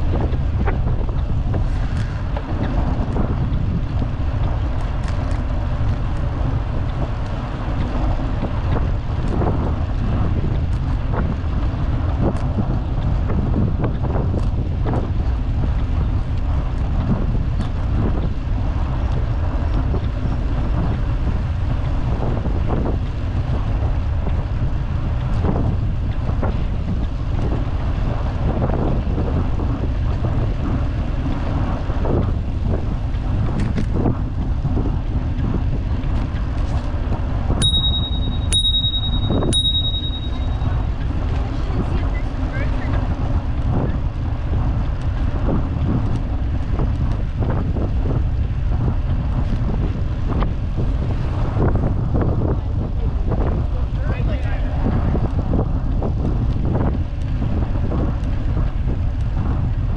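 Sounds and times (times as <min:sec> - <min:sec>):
bicycle knocks and rattles: 0:00.0 - 0:31.4
wind buffeting microphone: 0:00.0 - 0:59.9.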